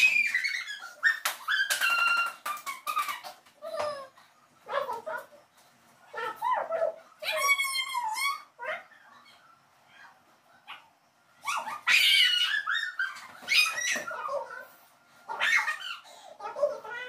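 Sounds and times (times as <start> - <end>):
young child squealing: 0.0 - 2.4, 11.5 - 14.3.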